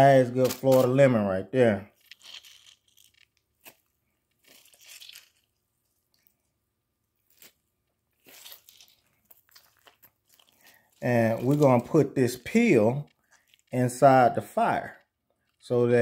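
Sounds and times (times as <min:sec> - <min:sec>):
lemon being squeezed: 0:02.0 - 0:06.3, 0:07.2 - 0:14.2.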